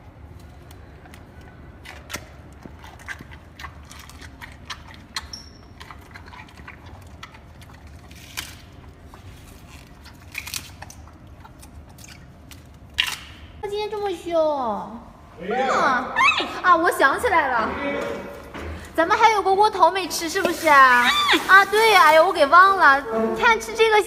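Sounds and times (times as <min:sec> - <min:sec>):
panda chewing bamboo: 0:00.1 - 0:13.3.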